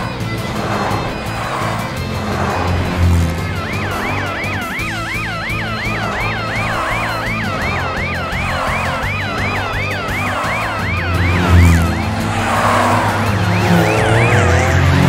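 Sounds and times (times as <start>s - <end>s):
background music with deep bass: 0.0s - 15.0s
cartoon police siren wailing: 3.2s - 15.0s.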